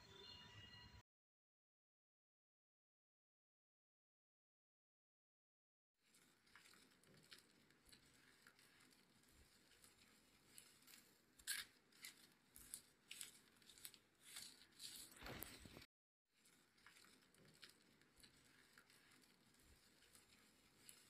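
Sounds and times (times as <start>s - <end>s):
dental instruments clicking and scraping: 6.0s - 21.0s.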